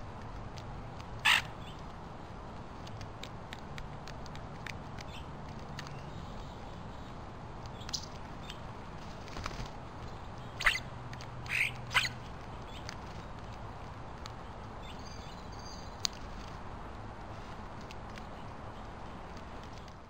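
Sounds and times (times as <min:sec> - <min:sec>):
starlings harsh calls: 0:01.2 - 0:01.8, 0:10.5 - 0:12.8.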